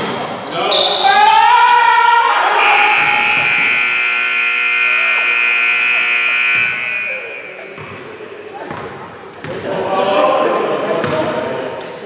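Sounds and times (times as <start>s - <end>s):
scoreboard buzzer blast: 2.6s - 7.6s.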